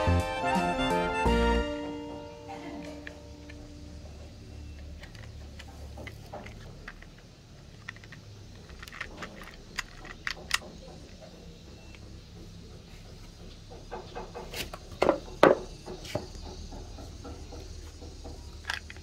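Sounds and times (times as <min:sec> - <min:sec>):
plastic toy cars clicking: 0:02.8 - 0:12.1, 0:17.4 - 0:19.0.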